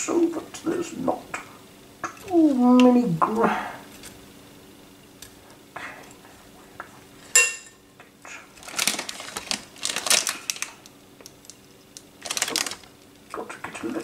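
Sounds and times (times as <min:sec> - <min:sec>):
spoon clinking glass bowl: 0:07.4 - 0:07.8.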